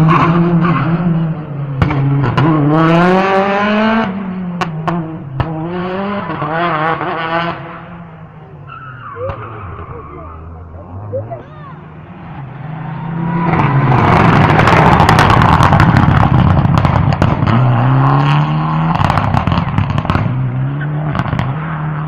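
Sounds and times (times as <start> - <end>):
rally car engine at full throttle: 0.0 - 22.0
exhaust cracks and pops: 14.1 - 17.6, 18.8 - 20.4.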